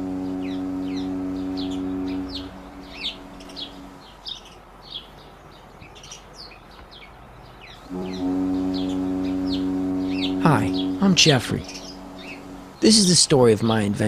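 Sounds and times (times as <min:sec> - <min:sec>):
deep steady horn-like tone: 0:00.0 - 0:04.0, 0:07.9 - 0:13.4
small birds chirping: 0:00.0 - 0:13.4.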